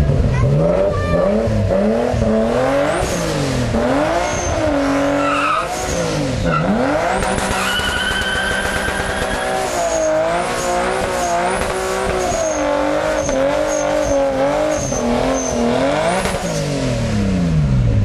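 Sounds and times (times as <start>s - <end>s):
car engine revving: 0.0s - 18.0s
tyre squealing: 4.1s - 10.7s.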